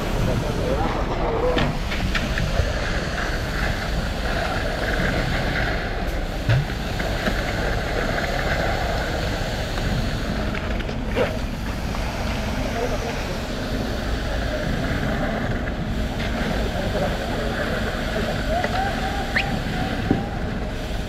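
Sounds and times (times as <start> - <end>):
heavy diesel machinery running: 0.0 - 21.0.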